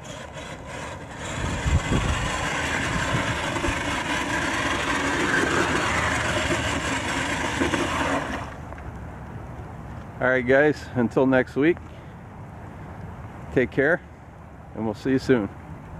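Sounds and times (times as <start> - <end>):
toy truck electric motor running: 0.0 - 8.6.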